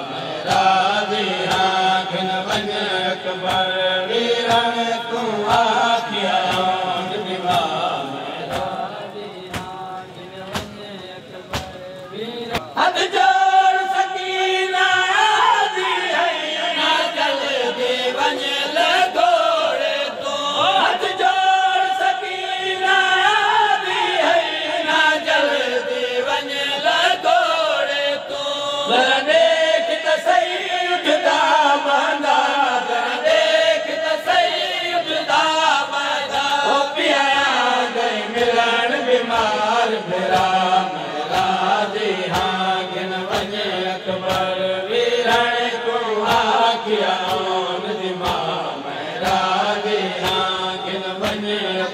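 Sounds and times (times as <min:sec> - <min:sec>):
voices chanting a lament: 0:00.0 - 0:51.9.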